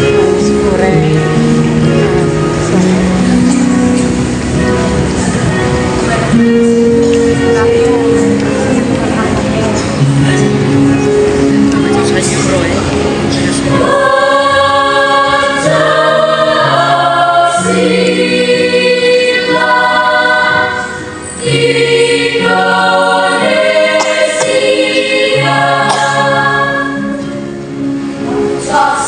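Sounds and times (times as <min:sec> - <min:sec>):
choir singing in parts: 0:13.2 - 0:29.0.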